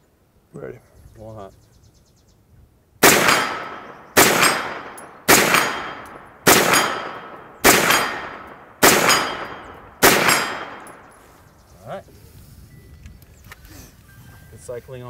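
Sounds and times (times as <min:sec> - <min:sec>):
gunshots with echo: 0:03.0 - 0:11.2.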